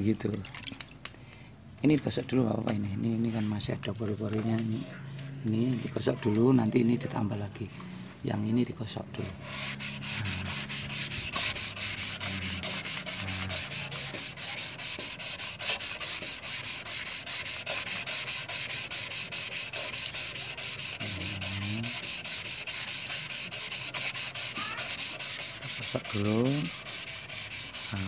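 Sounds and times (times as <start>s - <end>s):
sandpaper rasping on filler: 9.2s - 28.0s.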